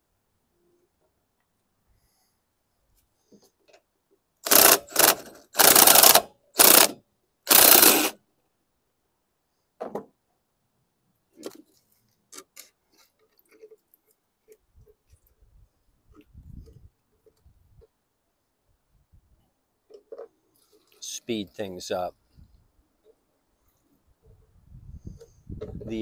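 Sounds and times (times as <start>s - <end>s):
cordless drill spinning bolts: 4.4s - 8.2s.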